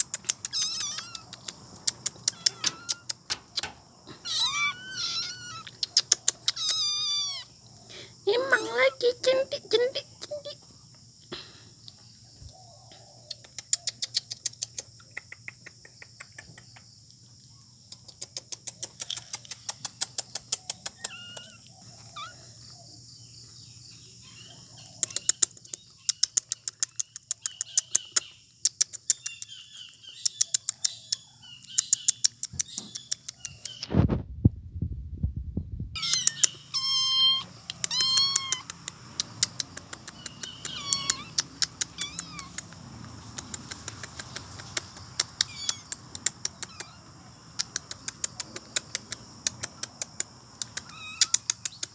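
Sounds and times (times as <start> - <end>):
kittens meowing: 0.0 - 1.5, 2.1 - 7.6, 20.9 - 22.7, 36.0 - 38.9, 40.2 - 42.8, 45.0 - 47.3, 50.6 - 51.6
rapid high clicks: 0.0 - 3.8, 17.9 - 21.6, 25.0 - 29.5, 37.4 - 47.0, 47.6 - 51.9
low muffled rumble: 33.9 - 36.0.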